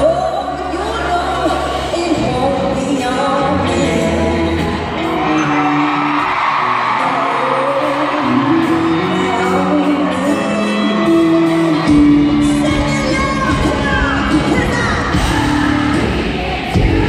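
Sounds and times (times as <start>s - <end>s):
woman singing: 0.0s - 5.3s, 7.0s - 17.0s
band playing: 0.0s - 17.0s
crowd cheering and whooping: 4.9s - 17.0s.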